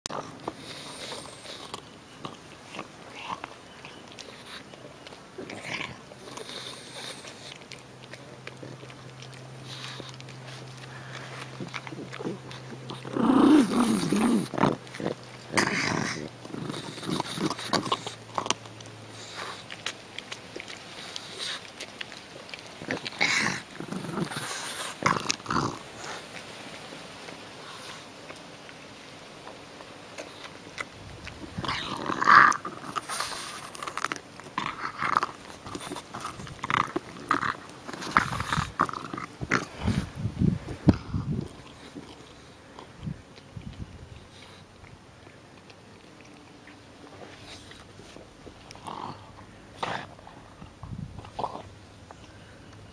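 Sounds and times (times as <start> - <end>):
dog breathing noisily: 0.1 - 1.9, 5.6 - 7.7, 9.4 - 18.4, 34.6 - 43.0
dog crunching and chewing: 0.1 - 52.9
dog snuffling: 0.2 - 28.9
dog grunting: 8.5 - 19.7, 22.8 - 26.3, 31.4 - 40.2, 48.8 - 50.7.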